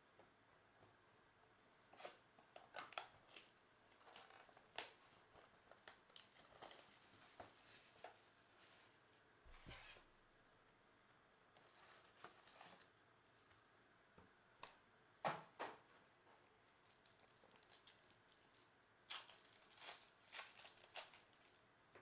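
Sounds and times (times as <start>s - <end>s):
plastic shrink wrap crinkling: 2.0s - 9.1s, 11.5s - 13.6s, 16.6s - 21.7s.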